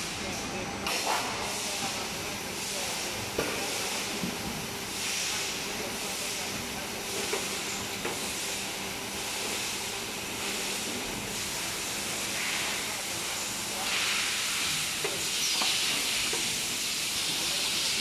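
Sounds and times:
faint machine hum: 0.0 - 18.0
machine air hiss: 0.9 - 18.0.

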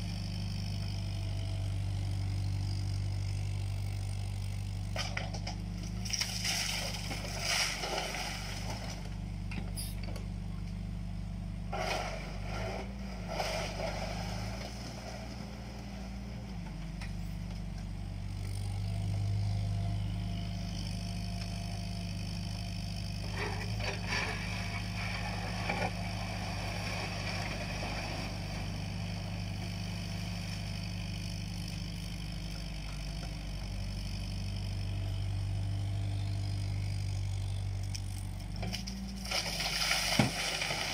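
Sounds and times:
diesel excavator engine running: 0.0 - 40.9
bucket scraping soil and stones: 6.0 - 9.1, 11.7 - 15.5, 23.3 - 28.8, 38.7 - 40.9.

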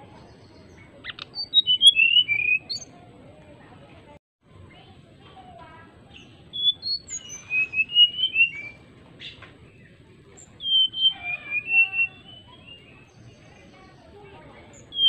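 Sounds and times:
bird whistling song: 0.6 - 2.9, 6.1 - 13.8, 14.7 - 15.0.

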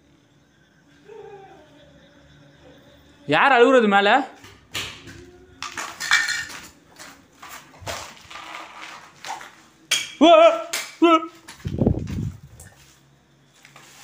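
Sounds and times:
short wavering cries: 0.8 - 3.3.

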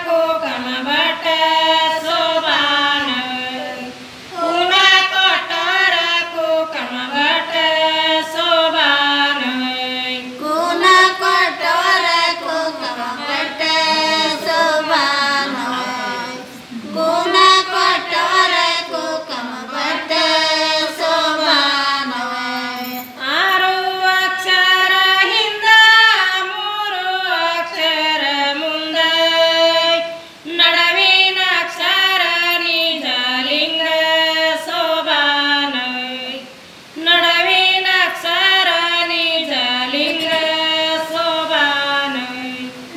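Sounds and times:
women singing unaccompanied folk song: 0.0 - 42.9.

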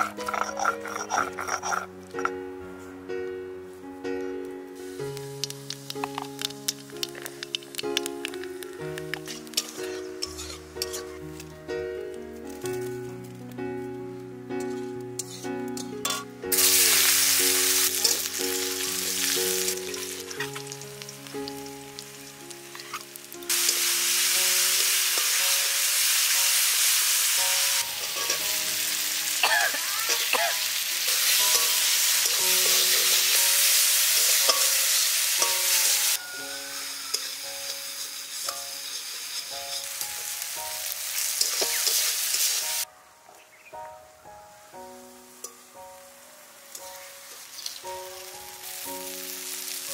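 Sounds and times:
metal spatula stirring in wok: 0.0 - 1.9, 9.3 - 11.2, 14.6 - 16.2, 27.8 - 28.6, 31.0 - 33.4, 34.2 - 36.0, 37.1 - 40.4, 41.4 - 42.7
onion sizzling in hot oil: 0.0 - 2.3, 4.7 - 11.5, 14.6 - 42.9, 45.2 - 49.9.

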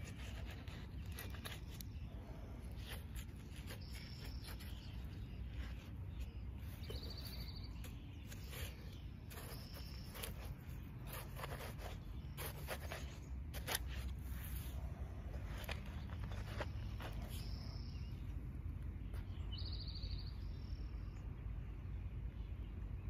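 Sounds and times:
knife cutting watermelon: 6.8 - 14.8.

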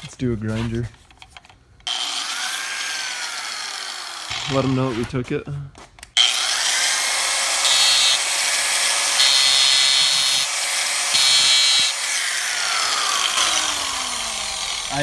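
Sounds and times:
angle grinder grinding metal: 1.8 - 5.3, 6.2 - 15.0
grinder winding down whine: 1.9 - 5.0, 6.2 - 15.0.

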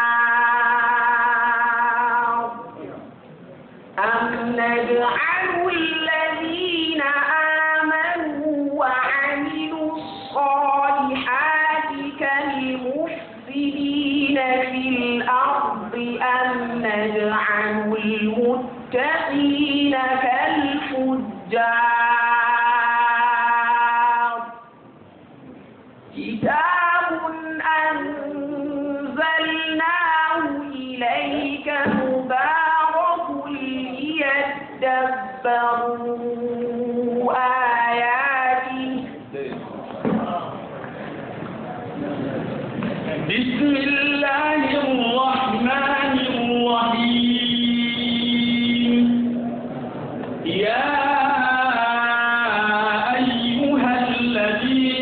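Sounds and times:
high voice reciting melodically: 4.0 - 21.9, 26.2 - 39.2.

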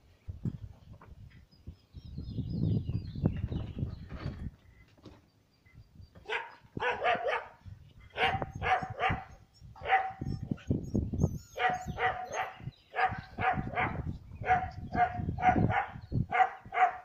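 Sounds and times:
small dog barking: 6.2 - 10.6, 11.6 - 17.0.

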